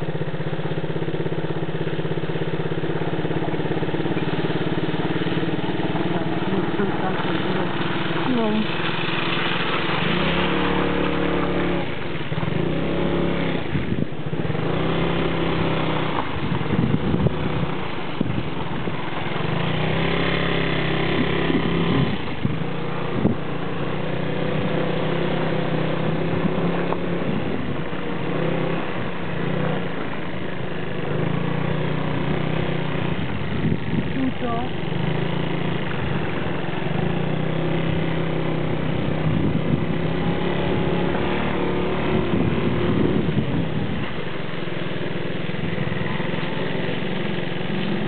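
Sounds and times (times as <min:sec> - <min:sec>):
motorcycle engine running: 0:00.0 - 0:48.0
road rumble: 0:00.0 - 0:48.0
wind noise: 0:04.2 - 0:25.0, 0:31.3 - 0:38.2, 0:38.8 - 0:48.0.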